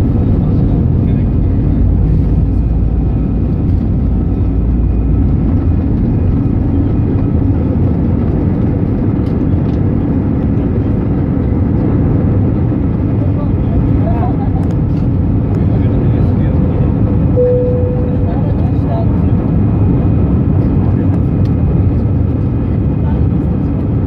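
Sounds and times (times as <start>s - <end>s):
faint high engine whine: 0.0s - 24.0s
jet engines rumbling: 0.0s - 24.0s.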